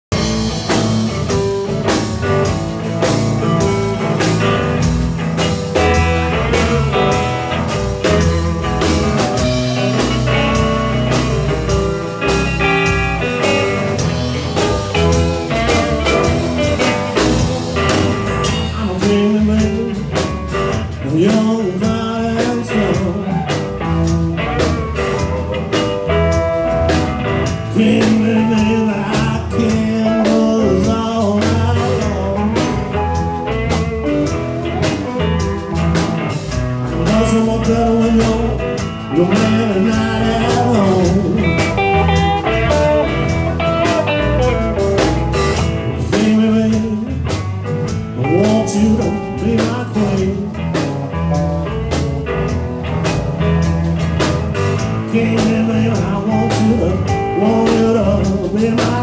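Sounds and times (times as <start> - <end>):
drum hits: 0.1 - 21.8
electric guitar: 0.1 - 59.0.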